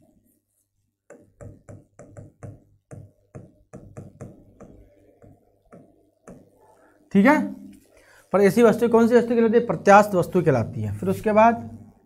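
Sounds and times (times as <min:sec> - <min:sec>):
marker writing on whiteboard: 0:00.0 - 0:06.8.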